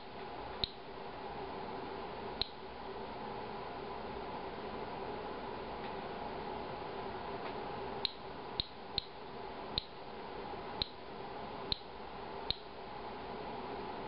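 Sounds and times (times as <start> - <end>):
geiger counter clicking: 8.0 - 9.2, 9.8 - 10.0, 11.7 - 11.9, 12.5 - 12.7.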